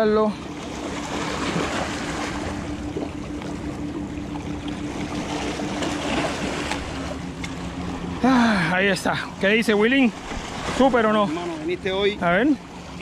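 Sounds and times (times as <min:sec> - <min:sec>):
sea water splashing on rocks: 0:01.0 - 0:02.5, 0:05.3 - 0:07.6.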